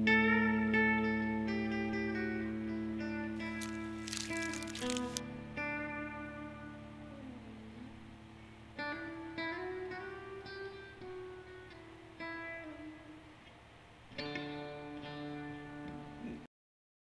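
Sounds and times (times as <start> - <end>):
plucked guitar music: 8.8 - 13.1, 14.2 - 16.3.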